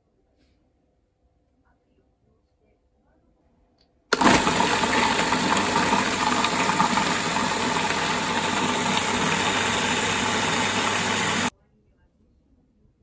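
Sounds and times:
food processor chopping vegetables: 4.1 - 11.5.

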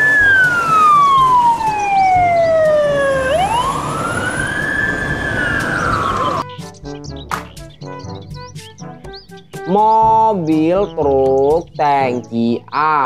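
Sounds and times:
fire engine siren wailing: 0.0 - 6.4
bright music: 0.0 - 13.0.

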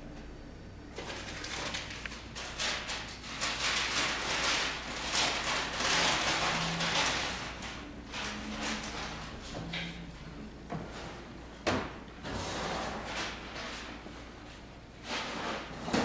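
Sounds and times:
popcorn crackling in a machine: 0.9 - 11.2.

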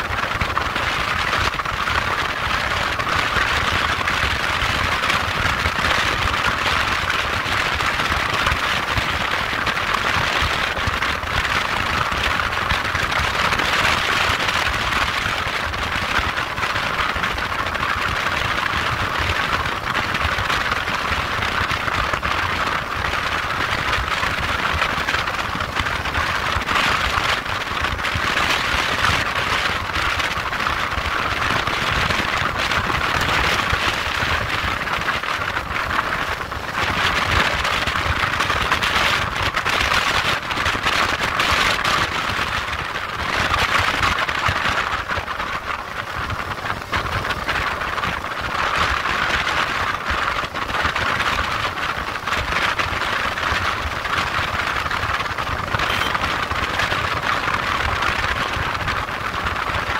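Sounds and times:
wind noise: 0.0 - 59.9
motorcycle engine: 55.3 - 57.3.

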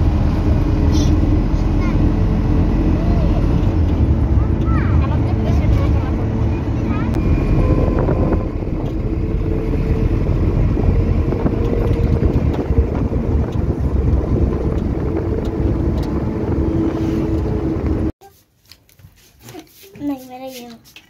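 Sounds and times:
road and engine rumble: 0.0 - 18.3.

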